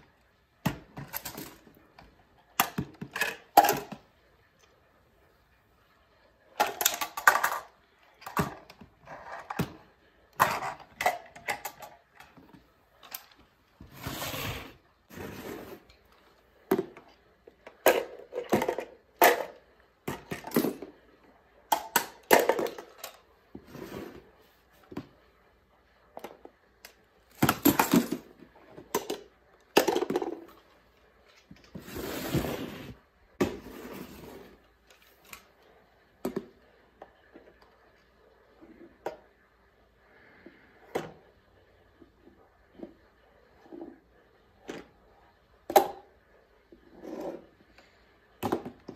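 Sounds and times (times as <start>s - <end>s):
plastic bins clattering on tile: 0.0s - 4.1s, 6.5s - 21.0s, 21.7s - 24.3s, 26.2s - 30.7s, 31.3s - 35.5s, 47.0s - 48.9s.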